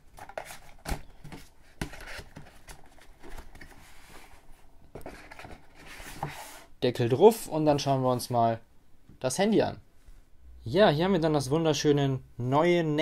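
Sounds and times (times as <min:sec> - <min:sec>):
paper and card rustling: 0:00.0 - 0:06.6.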